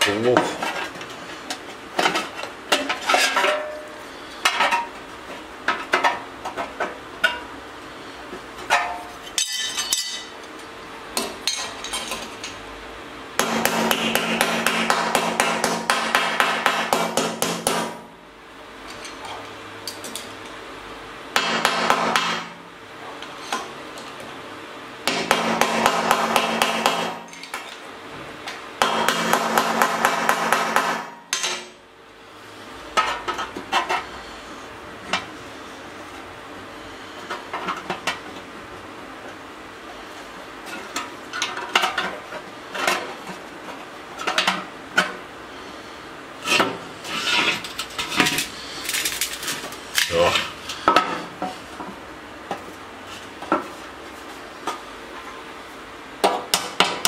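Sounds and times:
hammering on sheet steel: 13.4 - 18.1, 21.3 - 22.6, 25.0 - 27.3, 28.8 - 31.7.

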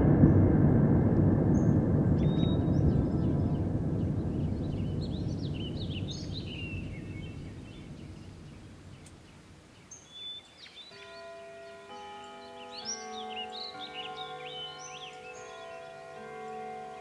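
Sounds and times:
deep noisy rumble: 0.0 - 9.8
small birds chirping: 1.5 - 17.0.

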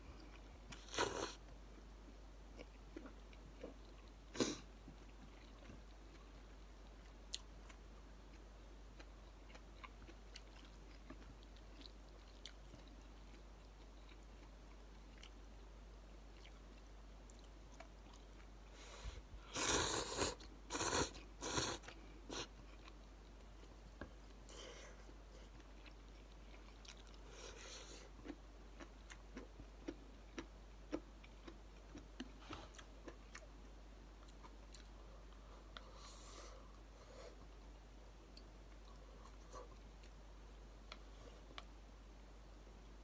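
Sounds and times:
person chewing: 2.5 - 15.5, 16.3 - 18.6, 19.4 - 33.6.

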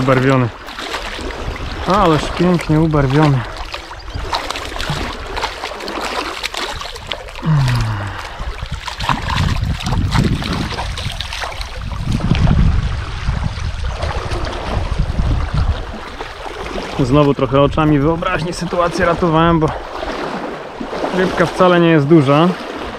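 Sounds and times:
river water rushing: 0.0 - 12.0
short splashes: 0.0 - 22.9.

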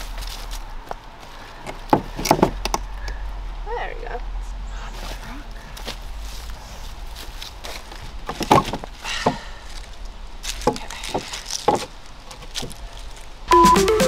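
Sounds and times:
electronic music: 13.5 - 14.0.

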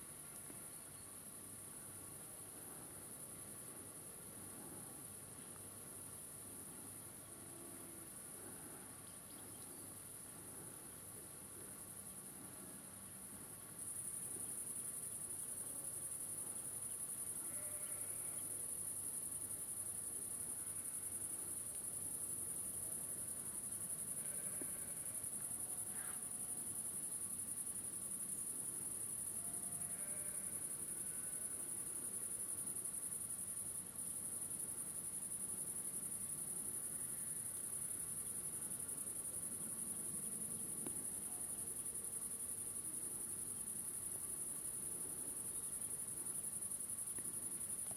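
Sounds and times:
crickets chirring: 12.8 - 47.9.

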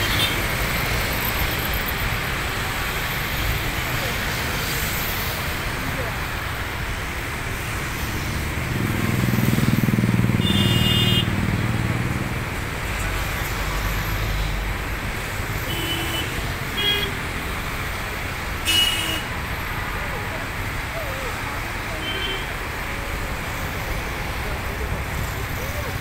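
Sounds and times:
road traffic noise: 0.0 - 26.0
vehicle engine rumbling past: 8.3 - 10.4
vehicle horns honking: 10.3 - 11.4, 15.7 - 17.2, 18.6 - 19.4.

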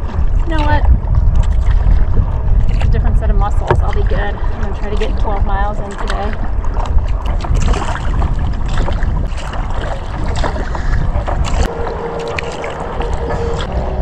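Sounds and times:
paddle splashing water: 0.0 - 14.0
steady low rumble: 0.0 - 14.0
water dripping: 11.4 - 14.0.

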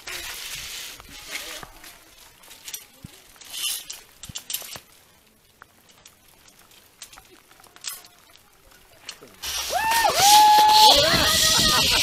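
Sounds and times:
metal clicks of carabiners: 2.6 - 4.9, 5.9 - 8.4.

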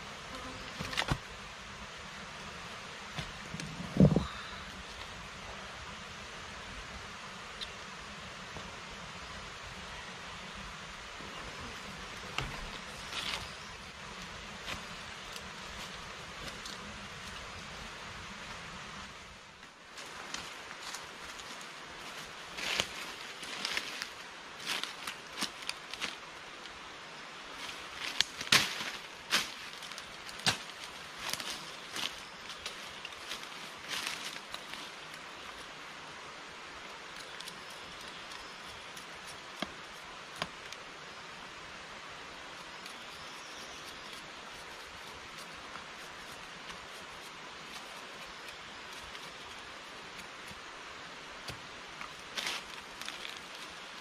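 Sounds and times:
rustle of dry leaves and twigs: 0.0 - 54.0
steady hiss: 0.0 - 54.0
leaf litter rustling: 19.9 - 26.6, 27.5 - 35.8, 51.4 - 54.0
sharp twig cracks: 28.0 - 29.6.

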